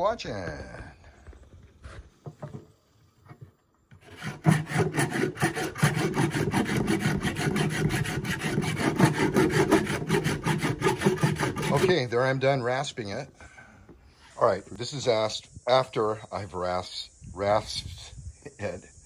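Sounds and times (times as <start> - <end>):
hand rasp shaving wood: 3.9 - 12.1.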